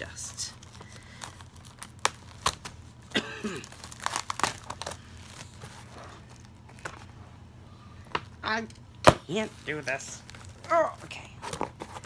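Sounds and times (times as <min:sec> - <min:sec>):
packaging crinkling: 0:00.5 - 0:07.0, 0:09.3 - 0:12.0.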